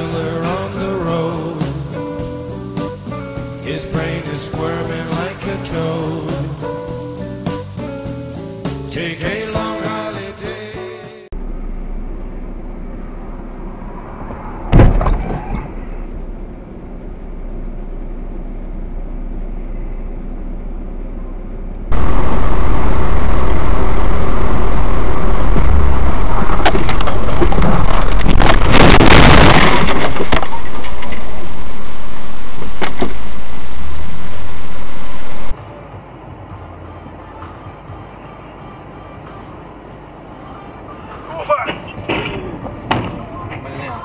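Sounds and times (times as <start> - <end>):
muffled vehicle noise: 11.3 - 44.0
vehicle noise: 11.3 - 44.0
loud crash: 14.3 - 15.9, 21.9 - 35.5
rush of noise: 21.9 - 35.8.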